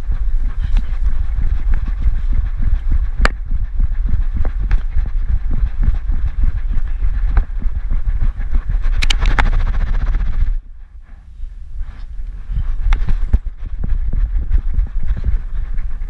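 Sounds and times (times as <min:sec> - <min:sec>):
sharp clicks: 0:08.8 - 0:10.3.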